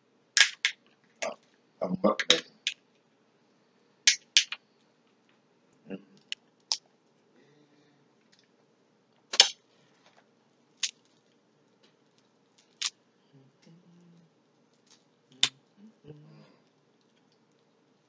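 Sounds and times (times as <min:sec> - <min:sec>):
crab shells cracking: 0:10.8 - 0:11.2.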